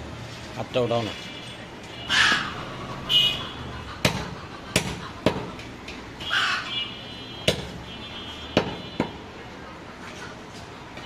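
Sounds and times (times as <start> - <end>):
harsh crow-like bird calls: 2.0 - 5.3, 6.2 - 6.9
knife striking wooden chopping block: 4.0 - 5.5, 7.5 - 7.8.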